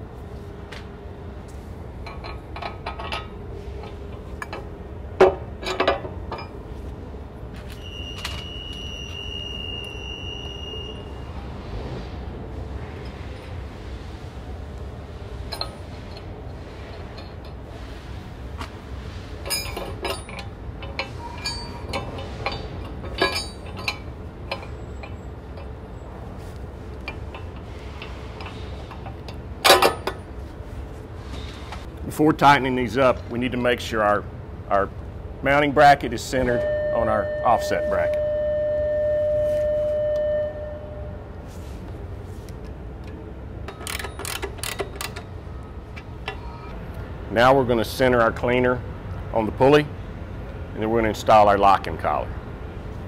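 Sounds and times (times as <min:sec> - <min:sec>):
steady low hum: 0:00.0 - 0:53.0
metallic clinks and knocks: 0:02.0 - 0:06.6, 0:19.4 - 0:25.8, 0:27.0 - 0:30.2
ratchet wrench clicking: 0:43.7 - 0:45.2.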